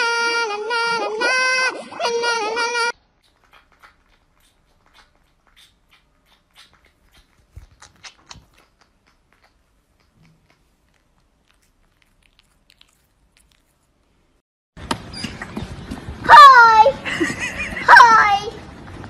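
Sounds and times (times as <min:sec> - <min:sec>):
cat licking and nibbling: 0:03.2 - 0:14.4.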